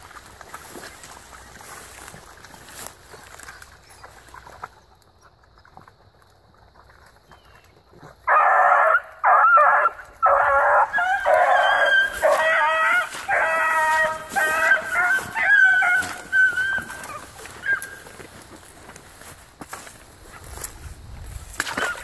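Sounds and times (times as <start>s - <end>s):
hounds baying: 8.2s - 18.4s.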